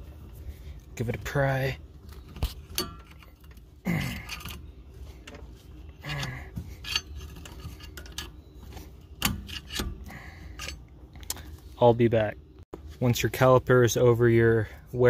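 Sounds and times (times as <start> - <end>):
screwdriver prying metal clinks: 6.8 - 8.4.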